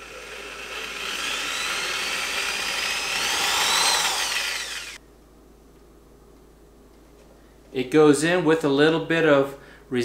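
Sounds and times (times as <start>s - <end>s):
electric drill whining: 0.0s - 5.0s.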